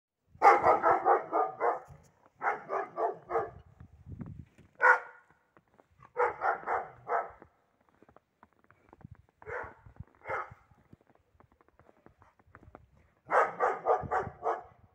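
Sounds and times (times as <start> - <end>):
dog barking: 0.4 - 3.7, 4.8 - 5.4, 6.0 - 7.5, 9.4 - 10.8, 13.2 - 14.9.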